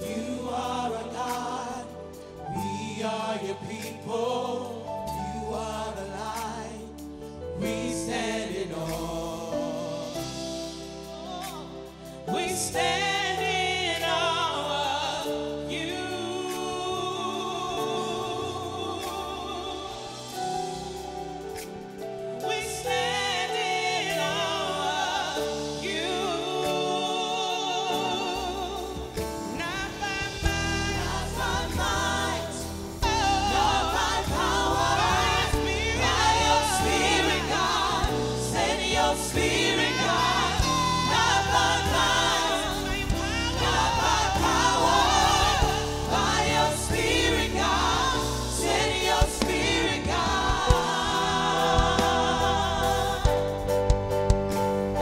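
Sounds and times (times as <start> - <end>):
women singing gospel: 0.0 - 54.0
keyboards and drums: 28.4 - 55.0.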